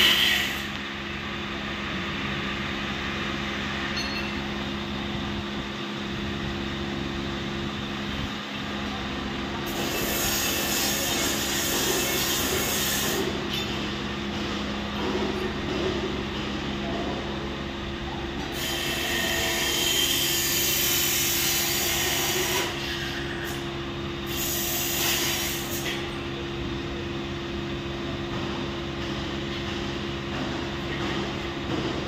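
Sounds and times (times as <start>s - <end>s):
machinery humming: 0.0s - 32.0s.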